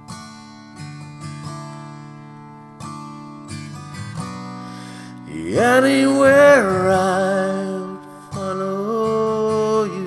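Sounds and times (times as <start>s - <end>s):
acoustic guitar strumming chords: 0.0s - 10.0s
person singing: 5.1s - 10.0s.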